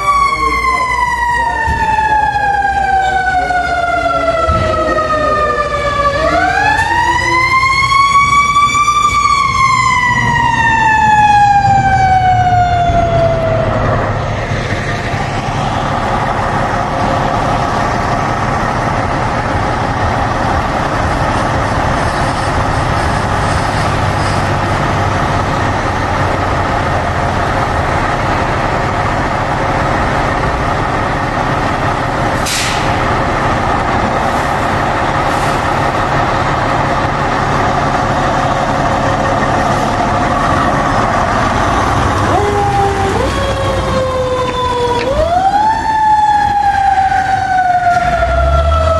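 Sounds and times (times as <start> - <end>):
diesel engine idling: 0.0 - 48.9
fire engine siren wailing: 0.0 - 48.9
short hiss: 32.4 - 32.9.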